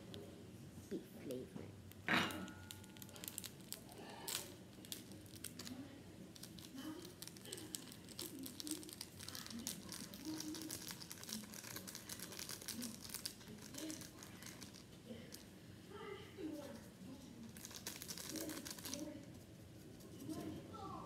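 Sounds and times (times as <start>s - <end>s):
seasoning packet crinkling and tearing: 2.7s - 15.5s, 17.5s - 19.1s.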